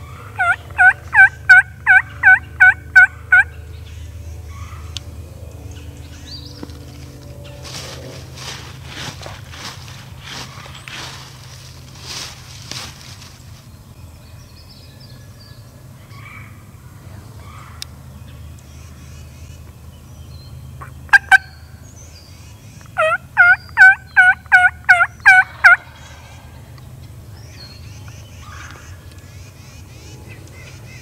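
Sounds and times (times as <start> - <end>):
turkey clucking and yelping: 0.0 - 3.6, 20.8 - 21.6, 22.8 - 26.3.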